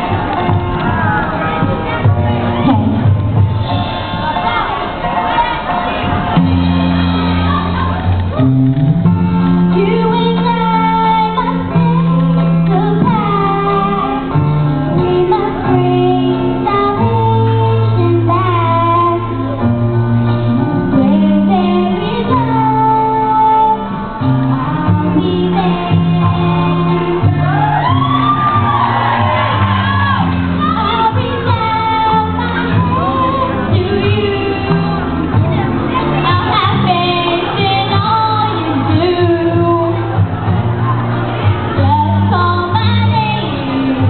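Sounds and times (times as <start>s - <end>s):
sustained instrumental chords: 0.0s - 44.0s
girl singing into microphone: 9.6s - 40.6s, 41.6s - 44.0s.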